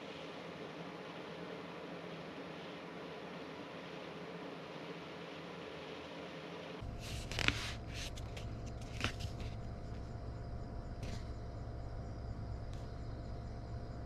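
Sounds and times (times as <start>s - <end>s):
low vehicle-like hum: 6.7s - 14.0s.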